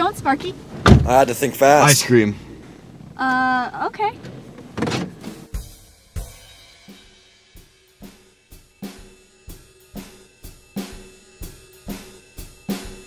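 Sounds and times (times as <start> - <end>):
slow drum-kit beat: 5.3 - 13.0.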